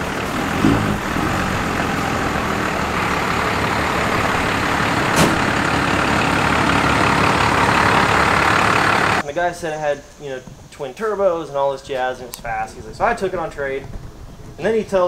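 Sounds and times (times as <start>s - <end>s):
diesel pickup engine running: 0.0s - 9.2s.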